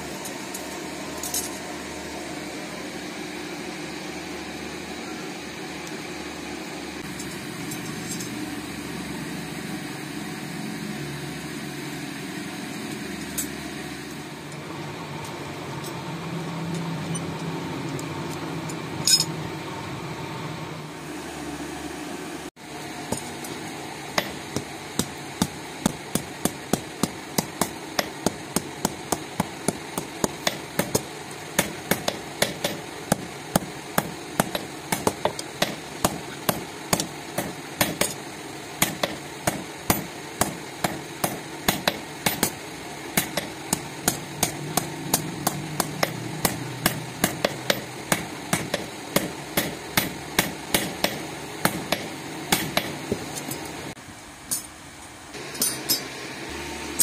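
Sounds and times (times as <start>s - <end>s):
steady low hum: 0.0s - 57.0s
hammer striking steel on anvil: 19.1s - 19.3s, 23.1s - 38.2s, 38.8s - 42.6s, 43.2s - 53.7s, 55.4s - 56.1s.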